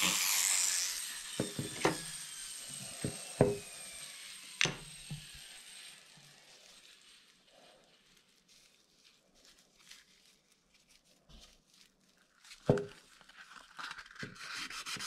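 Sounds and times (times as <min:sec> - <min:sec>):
rotary tool whining down: 0:00.0 - 0:07.3
knocks on wooden workbench: 0:01.4 - 0:02.0, 0:03.0 - 0:03.6.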